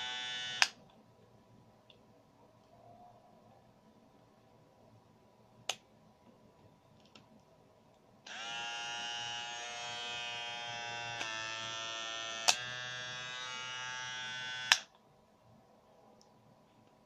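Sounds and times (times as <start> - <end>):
electric clipper motor buzzing: 0.0 - 0.7, 8.3 - 14.8.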